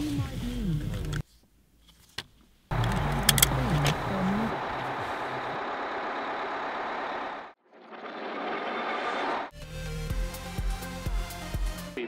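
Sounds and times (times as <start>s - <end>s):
vehicle engine and road noise: 2.0s - 9.5s
sharp clicks: 2.7s - 4.1s.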